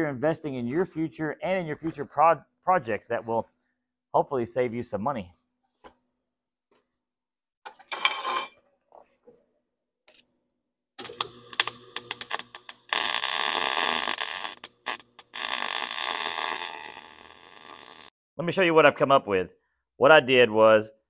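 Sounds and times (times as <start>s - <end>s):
arc welding crackling hiss: 11.5s - 18.1s.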